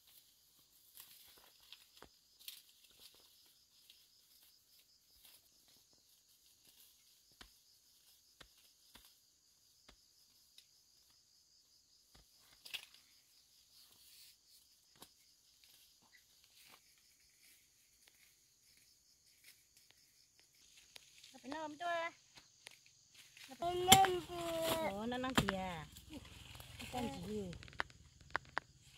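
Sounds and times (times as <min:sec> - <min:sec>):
insect chirring: 0:00.0 - 0:28.9
twigs and leaves snapping: 0:23.4 - 0:28.9.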